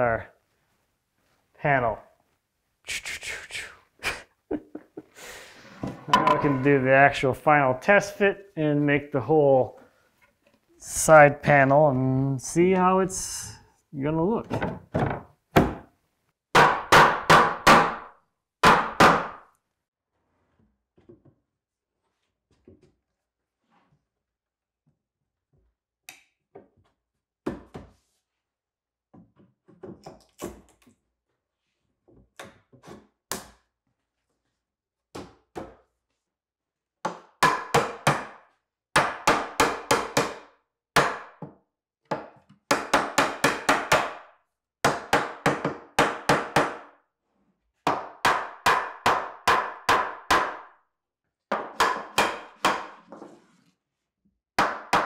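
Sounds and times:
rubber mallet knocking wood: 37.1s - 38.4s, 51.5s - 53.0s.

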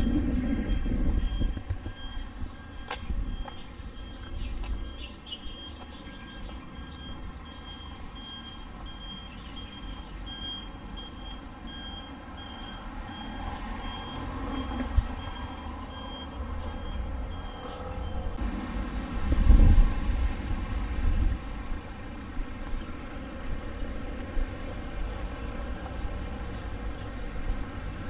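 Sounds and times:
low street rumble: 0.0s - 28.0s.

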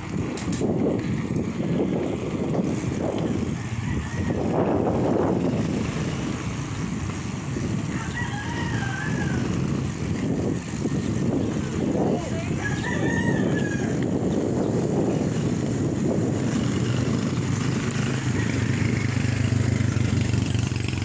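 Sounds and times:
wind buffeting microphone: 0.0s - 21.0s
distant rooster crowing: 3.3s - 5.0s, 7.8s - 9.8s, 12.3s - 14.3s, 18.2s - 19.6s.

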